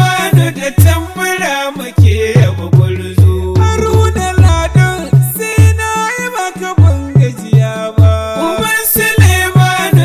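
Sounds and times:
deep drum beats: 0:00.0 - 0:06.2, 0:06.8 - 0:10.0.

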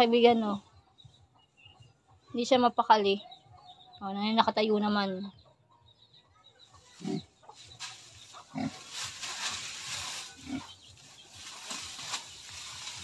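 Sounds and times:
pig grunting: 0:07.0 - 0:07.3, 0:08.4 - 0:08.9, 0:10.4 - 0:10.8
rustling dry grass: 0:07.0 - 0:13.0.

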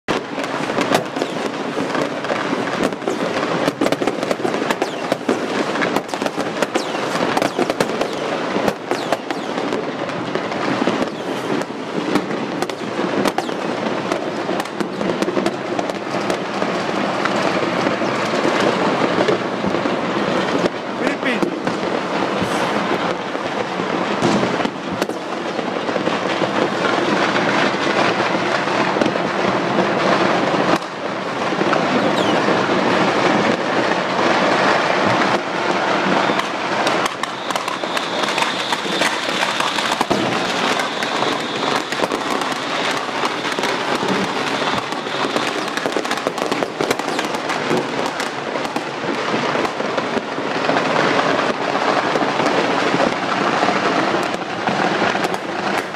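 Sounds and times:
fireworks and firecrackers bangs: 0:00.1 - 0:55.9.

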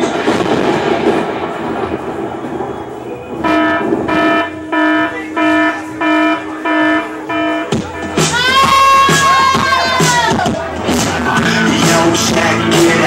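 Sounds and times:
noisy wash of music: 0:00.0 - 0:13.0
horn-like electronic blast: 0:02.0 - 0:09.1.

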